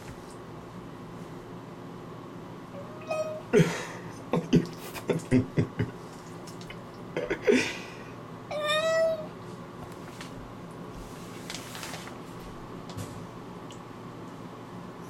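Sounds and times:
cat meowing: 0:02.8 - 0:03.5, 0:08.5 - 0:09.3.

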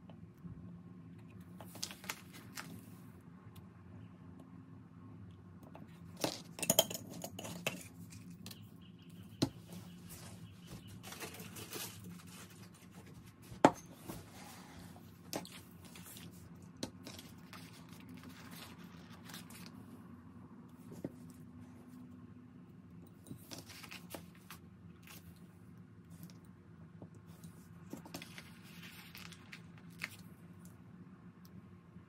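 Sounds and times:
paper rustling: 0:01.6 - 0:03.0, 0:09.6 - 0:19.8, 0:23.4 - 0:25.3, 0:27.9 - 0:30.3.

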